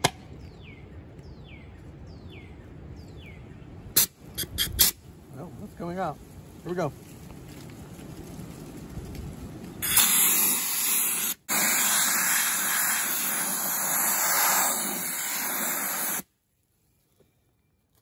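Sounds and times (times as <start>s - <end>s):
blast gun air hiss: 9.8s - 16.3s.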